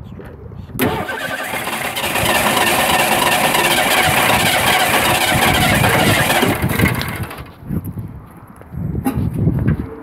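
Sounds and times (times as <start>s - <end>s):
car engine running: 0.8s - 7.6s.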